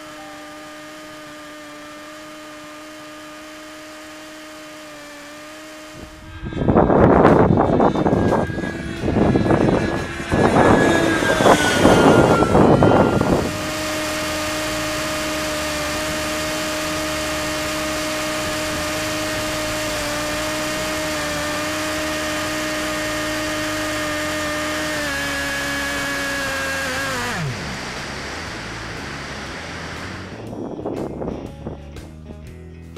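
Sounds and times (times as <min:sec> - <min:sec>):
model jet engine whining: 0:00.0 - 0:30.9
loud rushing noise: 0:05.8 - 0:22.5, 0:25.9 - 0:30.8.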